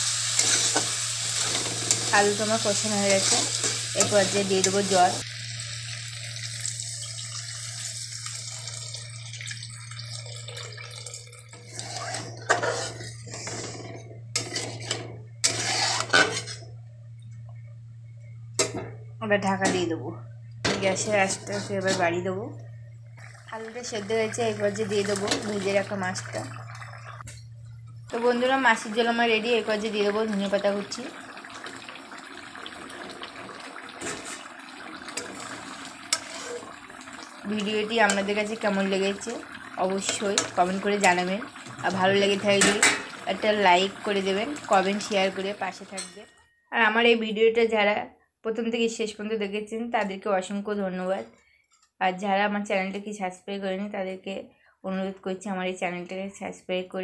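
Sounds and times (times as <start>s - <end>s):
water sizzling in hot pan: 0.0s - 13.2s, 23.2s - 27.3s, 28.1s - 46.2s
metal spatula scraping pan: 0.2s - 2.3s, 3.0s - 4.9s, 11.6s - 16.6s, 21.2s - 22.2s, 36.1s - 36.8s
curry bubbling in a pan: 29.8s - 45.6s.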